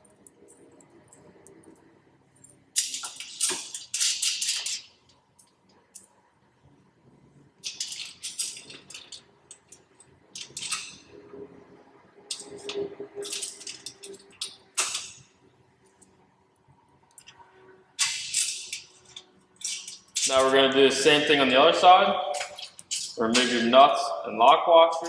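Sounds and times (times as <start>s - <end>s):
wrench and nuts clinking: 2.4s - 6.1s, 7.6s - 11.0s, 12.3s - 15.2s, 18.0s - 20.6s, 22.3s - 23.7s.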